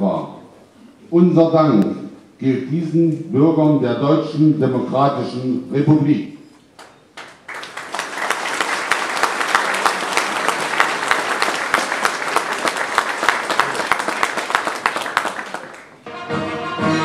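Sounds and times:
audience applauding: 0:06.8 - 0:16.0
brass band playing: 0:16.0 - 0:17.0.

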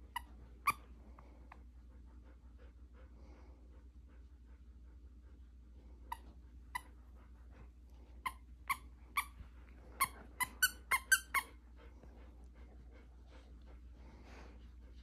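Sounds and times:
dog toy squeaking: 0:10.0 - 0:11.5.

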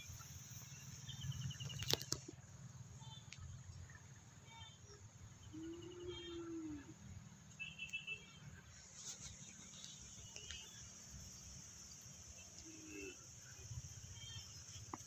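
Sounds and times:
drawn-out low call: 0:04.4 - 0:08.7, 0:12.3 - 0:14.6.

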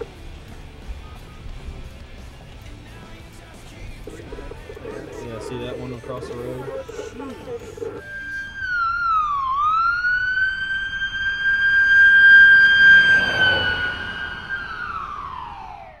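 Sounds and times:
siren high steady tone: 0:04.1 - 0:16.0.

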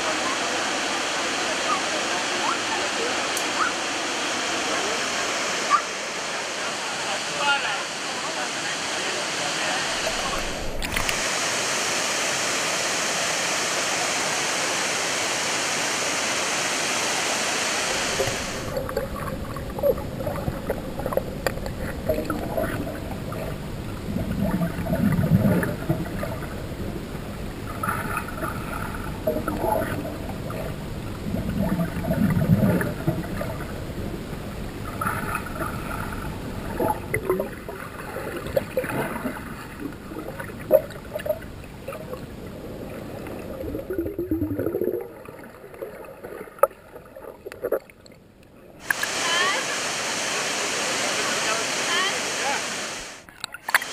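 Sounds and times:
waterfall rushing water: 0:00.0 - 0:19.3, 0:48.8 - 0:53.9
underwater gurgling and bubbling: 0:17.9 - 0:48.1.

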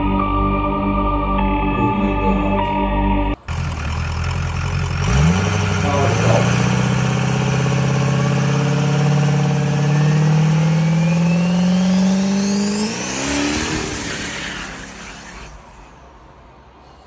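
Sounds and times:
diesel engine revving: 0:00.0 - 0:16.2.

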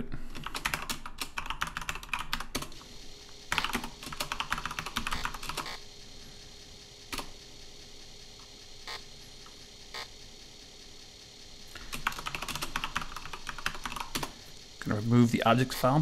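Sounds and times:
typing on computer keyboard: 0:00.4 - 0:02.8, 0:03.5 - 0:05.8, 0:11.9 - 0:14.3.

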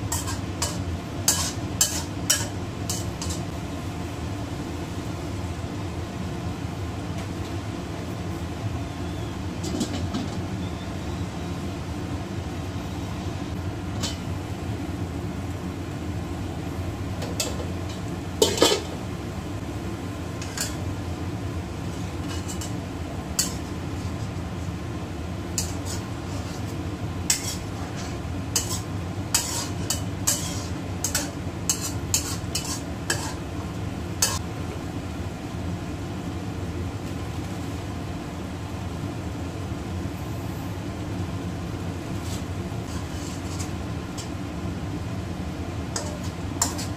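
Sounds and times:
spatula scraping a wok: 0:00.0 - 0:03.6, 0:20.4 - 0:20.9, 0:21.8 - 0:24.7, 0:25.5 - 0:33.6, 0:34.2 - 0:34.4, 0:42.1 - 0:44.4, 0:45.9 - 0:46.9.

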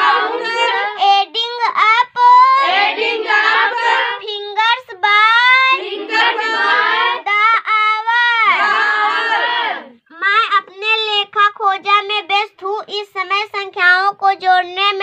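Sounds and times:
girl reciting in sing-song voice: 0:00.0 - 0:15.0.

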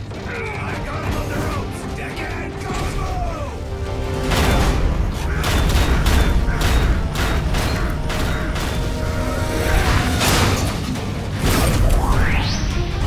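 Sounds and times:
dramatic music: 0:00.0 - 0:13.0.

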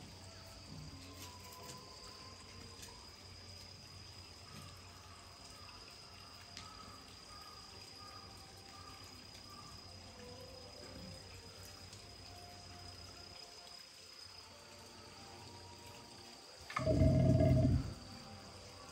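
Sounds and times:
trickle of running water: 0:00.0 - 0:18.9
high-pitched tone: 0:16.7 - 0:18.0
low hum: 0:16.7 - 0:18.0.

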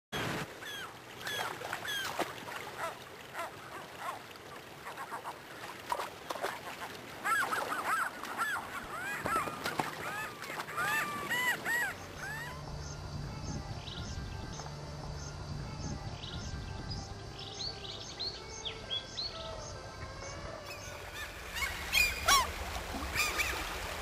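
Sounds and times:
rushing river water: 0:00.2 - 0:12.9, 0:20.6 - 0:24.0
gulls calling: 0:00.2 - 0:13.0, 0:20.7 - 0:24.0.

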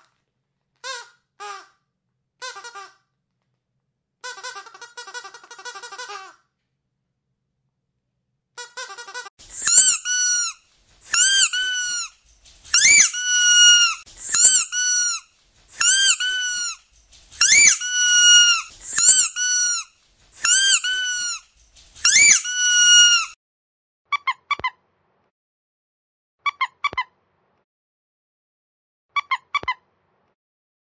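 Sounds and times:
squeaky dog toy squeaking: 0:00.8 - 0:01.8, 0:02.4 - 0:03.0, 0:04.2 - 0:06.4, 0:08.6 - 0:23.4, 0:24.1 - 0:24.8, 0:26.4 - 0:27.1, 0:29.1 - 0:29.8.

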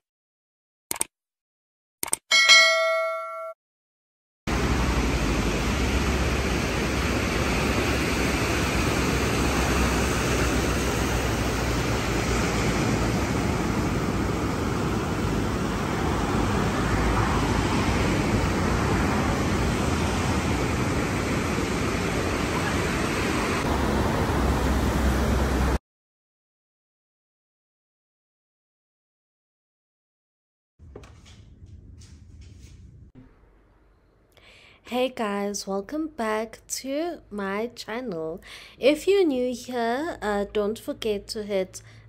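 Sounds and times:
loud steady rushing noise: 0:04.5 - 0:25.8
low rumble: 0:31.0 - 0:33.8.

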